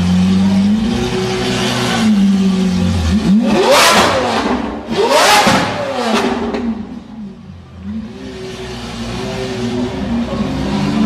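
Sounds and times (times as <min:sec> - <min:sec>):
sports car engine revving: 0:00.0 - 0:11.0.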